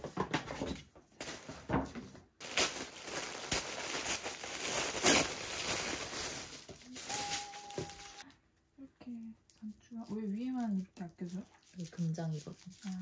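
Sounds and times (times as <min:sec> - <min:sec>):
packaging crinkling and rustling: 0:01.2 - 0:08.2, 0:09.8 - 0:13.0.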